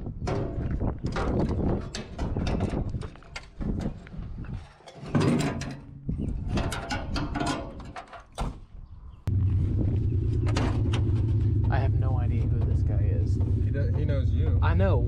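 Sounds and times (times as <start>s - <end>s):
tie-down strap rattling and scraping: 0.0s - 8.7s
truck engine humming: 9.3s - 15.0s.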